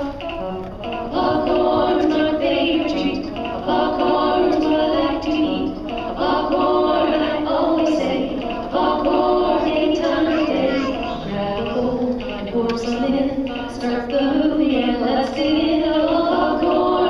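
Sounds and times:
children's song singing: 0.0s - 17.0s.

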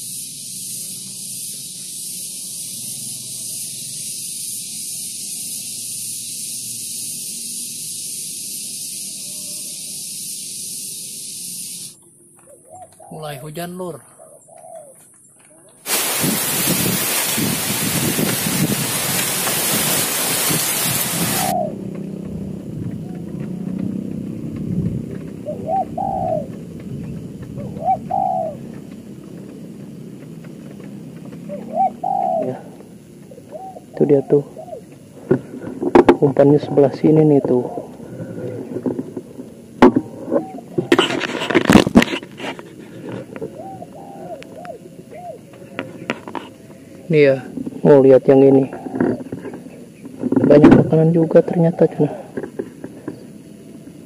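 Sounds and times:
high-pitched hiss: 0.0s - 12.0s, 15.8s - 21.7s
dove cooing: 12.4s - 15.0s, 16.9s - 39.2s, 40.0s - 41.2s, 42.7s - 47.2s, 48.4s - 50.3s, 51.2s - 54.0s
light rain hiss: 15.8s - 22.7s.

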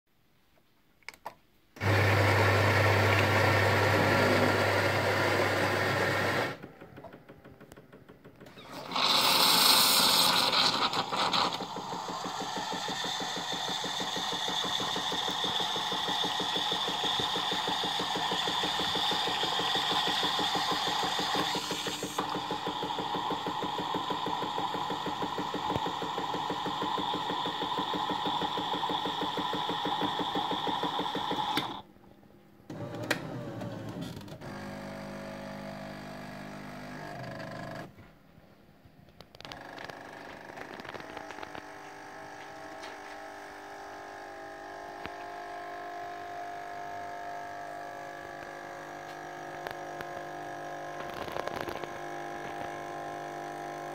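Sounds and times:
coffee grinder running: 1.8s - 6.6s, 8.6s - 31.8s, 34.4s - 37.6s, 39.4s - 53.9s
fast pulsing machine noise: 9.2s - 31.8s.

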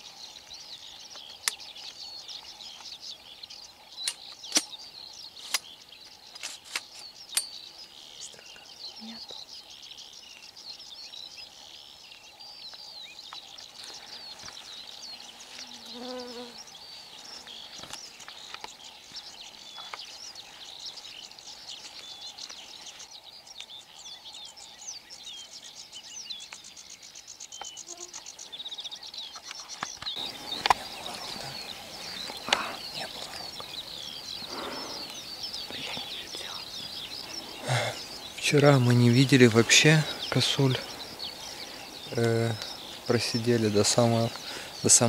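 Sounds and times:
birds singing and chirping: 0.0s - 45.0s.

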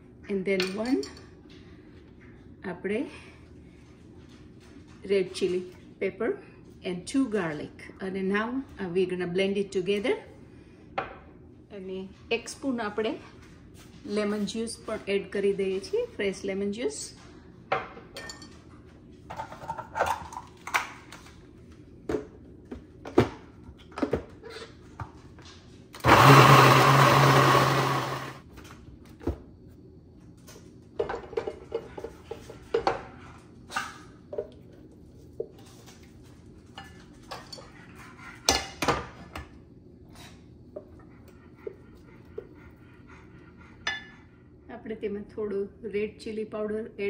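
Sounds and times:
kitchen blender running: 26.0s - 28.4s.

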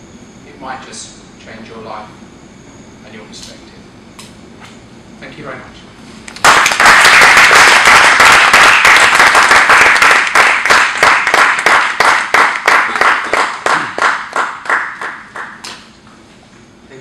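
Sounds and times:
audience applauding: 6.4s - 15.6s.

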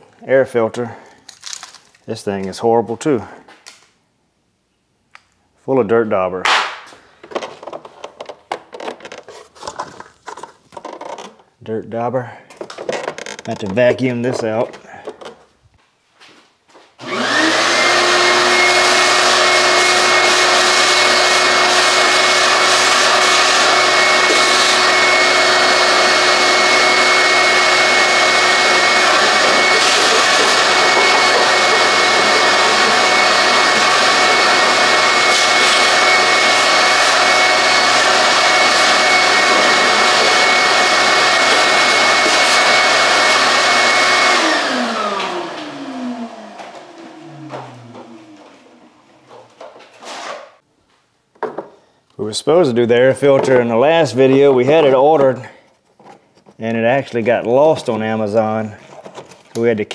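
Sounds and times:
shop vacuum motor whine: 17.0s - 49.2s.

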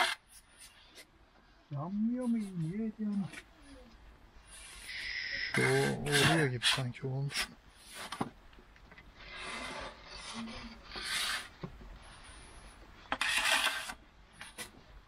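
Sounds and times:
wooden peel scraping stone floor: 0.0s - 1.0s, 9.2s - 11.7s, 13.1s - 14.8s.

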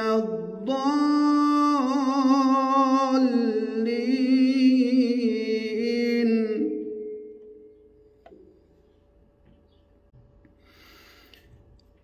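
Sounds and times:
man reciting melodically: 0.0s - 7.5s.

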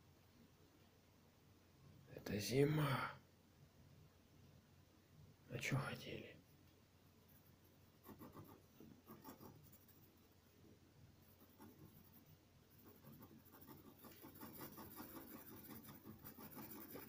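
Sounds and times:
pen scratching on paper: 8.0s - 10.1s, 11.2s - 17.0s.

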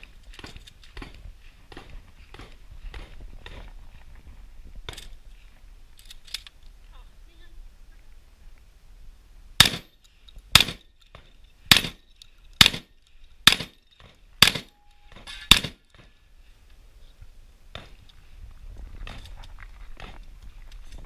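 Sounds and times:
shotgun shots: 9.6s - 9.9s, 10.5s - 10.8s, 11.7s - 12.0s, 12.6s - 13.8s, 14.4s - 15.8s.

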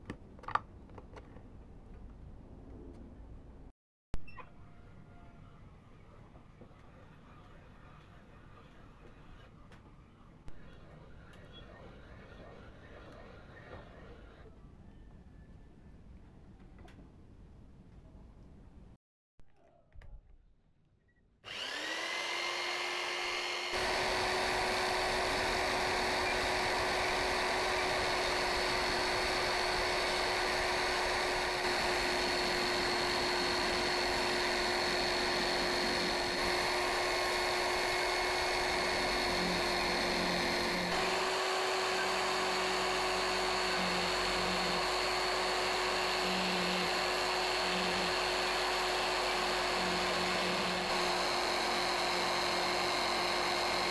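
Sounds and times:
electric drill spinning: 21.5s - 53.9s
end mill cutting wood: 21.5s - 53.9s.

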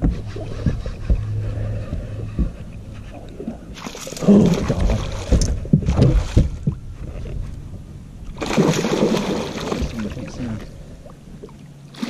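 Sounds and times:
fish splashing in water: 8.4s - 10.4s.

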